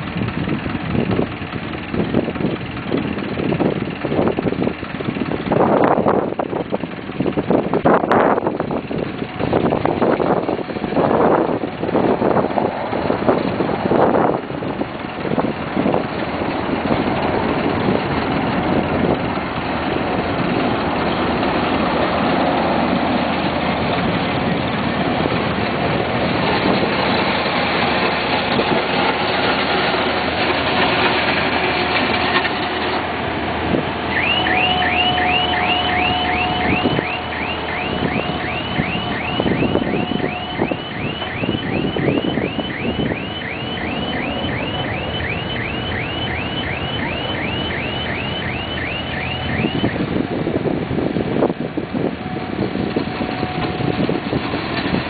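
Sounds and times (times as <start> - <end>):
diesel engine running: 0.0 - 55.0
electronic alarm chirps: 34.1 - 50.1.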